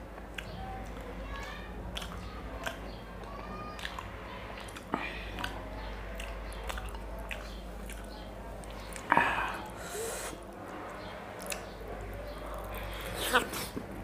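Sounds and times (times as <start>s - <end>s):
chewing food: 0.2s - 14.0s
wet mouth clicks: 3.8s - 5.6s, 6.2s - 10.4s.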